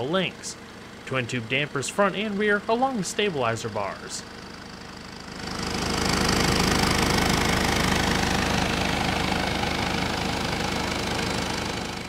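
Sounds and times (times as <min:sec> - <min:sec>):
car engine running: 0:00.0 - 0:12.0.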